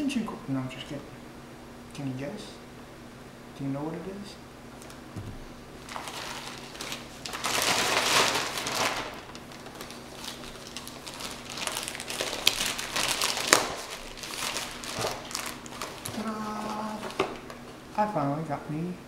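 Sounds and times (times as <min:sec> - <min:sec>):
packaging wrap crinkling: 0:05.8 - 0:17.7.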